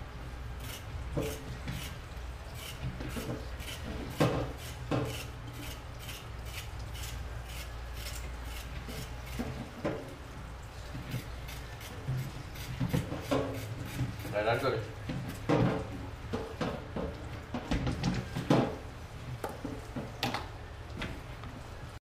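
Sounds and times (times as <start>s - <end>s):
knife scraping carrot: 2.6s - 3.9s, 4.5s - 9.4s.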